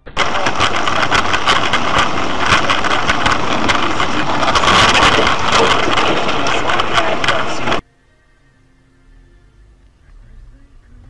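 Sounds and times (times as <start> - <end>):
heavy rain on car windshield: 0.0 - 7.8.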